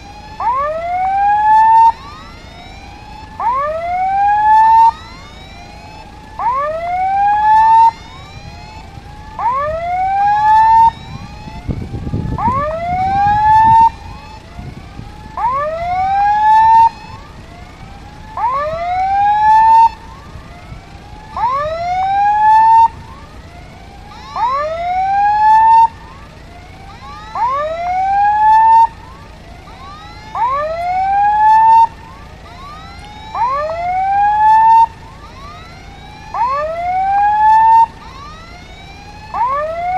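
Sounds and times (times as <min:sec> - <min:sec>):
rising electronic whoop signal: 0:24.1 - 0:26.0, 0:26.8 - 0:28.9.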